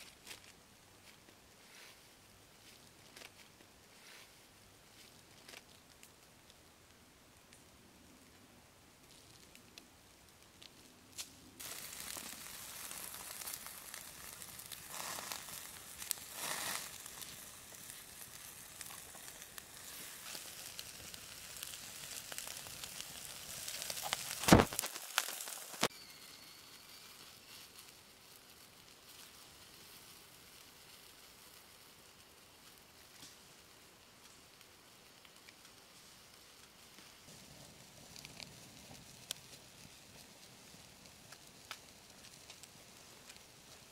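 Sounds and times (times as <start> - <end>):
crackling wood fire: 0.0 - 43.9
food sizzling on a grill: 11.6 - 37.5
sharp loud crack: 24.4 - 24.9.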